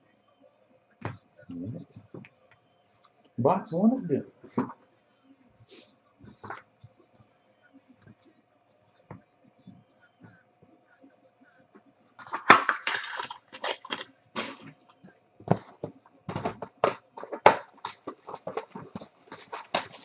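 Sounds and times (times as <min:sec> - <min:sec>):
plastic shrink wrap crackling: 0:12.2 - 0:14.7, 0:16.8 - 0:20.0.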